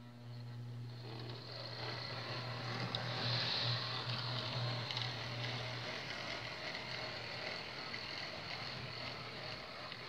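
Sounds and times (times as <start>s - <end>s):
model train wheels whirring: 0.0s - 10.0s.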